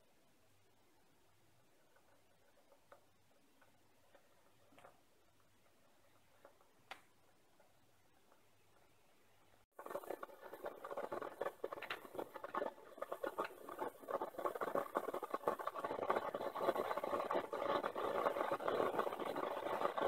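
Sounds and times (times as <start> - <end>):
vacuum coffee maker bubbling: 0.7 - 9.0, 9.6 - 20.0.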